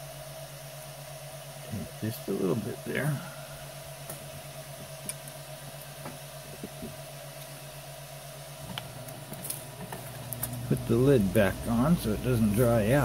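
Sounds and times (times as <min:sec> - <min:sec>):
faint hiss: 0:00.0 - 0:08.8
printer fans humming: 0:00.0 - 0:13.0.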